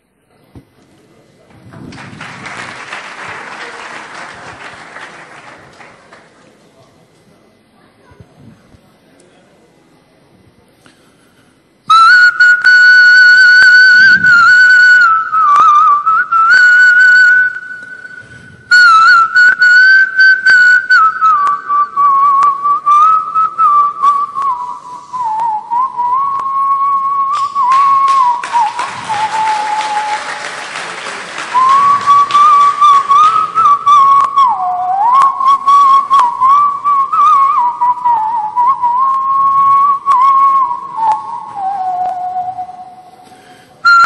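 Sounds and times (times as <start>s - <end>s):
audience applause: 1.6s - 6.7s, 27.7s - 33.8s
man whistling a trilling melody: 11.9s - 30.6s, 31.5s - 44.0s.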